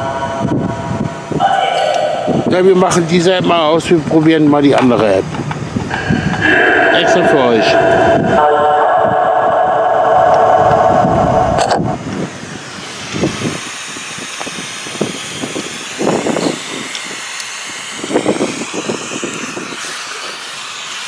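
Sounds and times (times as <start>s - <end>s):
steady droning tone: 5.8s - 12.2s
choppy bursts of sound: 5.8s - 12.9s.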